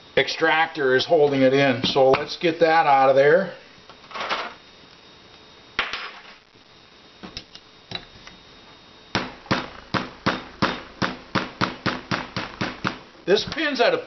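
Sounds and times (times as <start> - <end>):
hammer tapping punch: 9.2 - 13.0.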